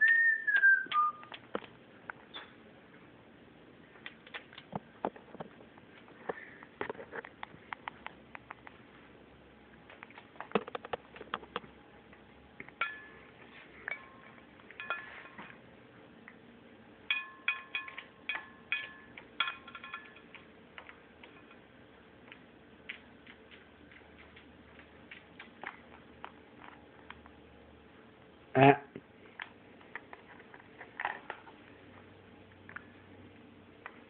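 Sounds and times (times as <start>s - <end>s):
clinks on a ceramic plate: 13.9s - 15.4s, 17.1s - 20.4s.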